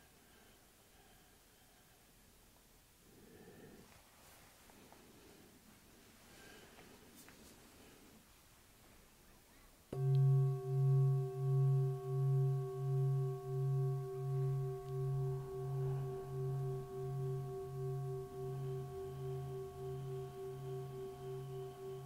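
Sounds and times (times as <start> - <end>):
singing bowl ringing: 10.0 - 22.0.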